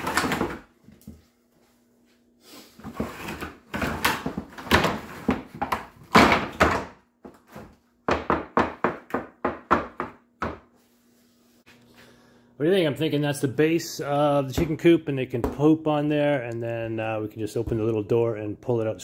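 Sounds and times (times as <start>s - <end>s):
knocking and thudding of wooden parts: 2.9s - 10.7s.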